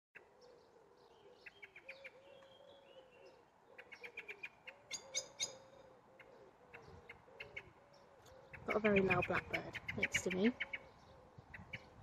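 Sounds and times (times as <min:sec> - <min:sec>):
low cooing call: 0:00.2 - 0:09.0
blackbird chinking alarm calls: 0:01.2 - 0:12.0.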